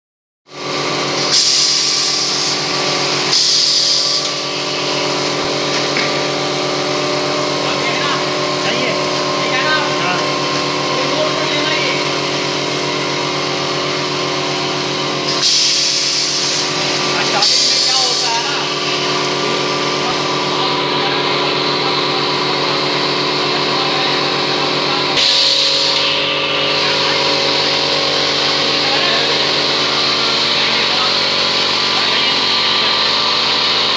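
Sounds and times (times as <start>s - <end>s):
machine mechanical hum: 0.5s - 33.9s
loud hissing bursts: 1.3s - 5.1s, 15.3s - 18.8s, 25.1s - 33.9s.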